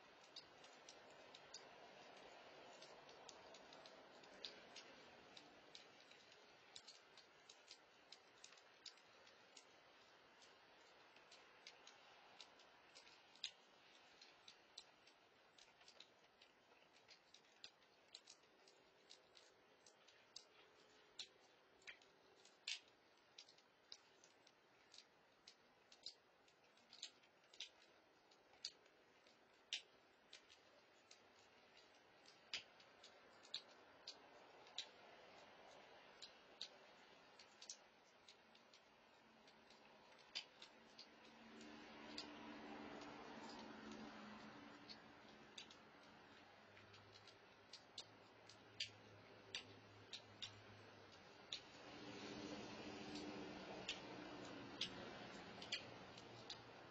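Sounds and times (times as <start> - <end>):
cats eating clicks: 0.0 - 56.9
low hiss: 0.0 - 56.9.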